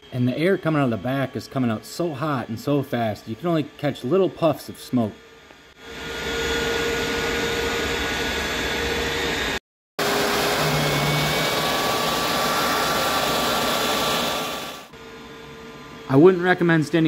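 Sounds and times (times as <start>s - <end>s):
steady whining tones: 0.1s - 17.0s
jet engine exhaust rushing: 6.0s - 14.9s.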